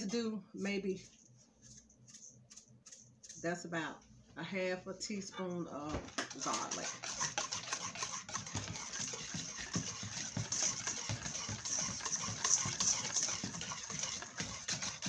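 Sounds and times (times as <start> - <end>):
wire whisk beating in metal bowl: 6.0 - 15.0.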